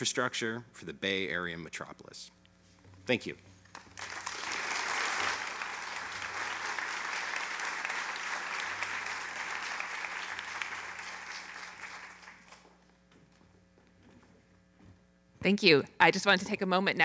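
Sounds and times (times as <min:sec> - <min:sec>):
audience applauding: 0:03.7 - 0:12.8.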